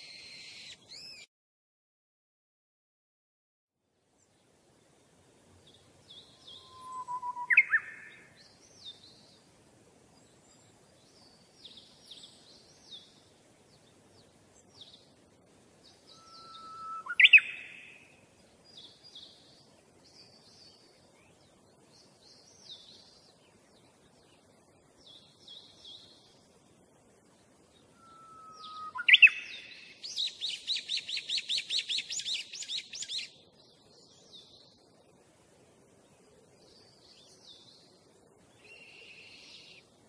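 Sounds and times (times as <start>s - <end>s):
small bird chirping: 0.0s - 1.3s, 5.6s - 9.4s, 15.8s - 26.4s, 27.8s - 34.8s
rising whistle bird call: 6.4s - 8.1s, 16.1s - 17.9s, 27.9s - 33.1s.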